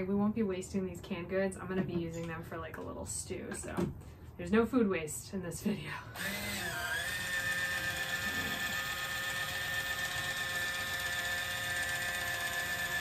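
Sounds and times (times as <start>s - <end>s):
electric can opener whining: 6.2s - 13.0s.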